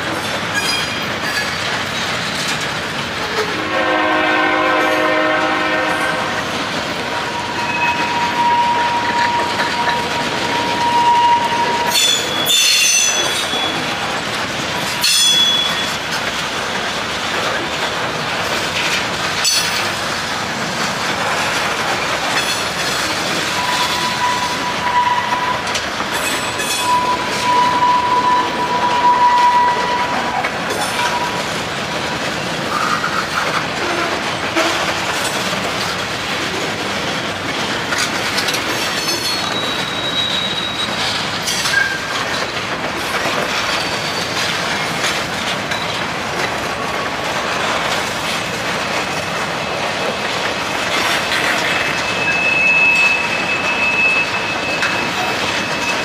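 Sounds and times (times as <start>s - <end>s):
freight train rumbling past: 0.0s - 56.0s
wheels clacking over rail joints: 0.0s - 56.0s
wavering wheel squeal: 7.2s - 13.8s, 23.6s - 30.4s, 39.2s - 41.1s, 51.6s - 56.0s.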